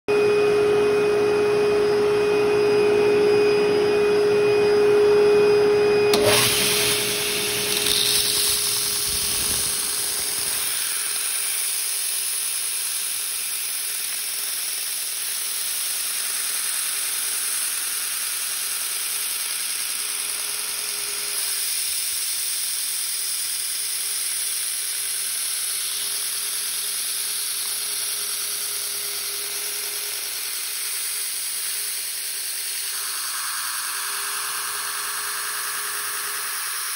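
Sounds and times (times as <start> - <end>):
belt sander humming: 0.3 - 36.9
plastic grinding on sander belt: 6.1 - 14.9.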